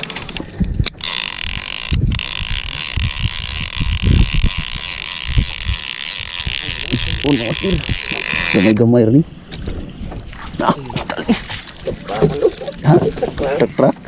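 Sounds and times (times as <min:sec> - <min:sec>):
electric fishing reel whirring: 0:00.8 - 0:08.8.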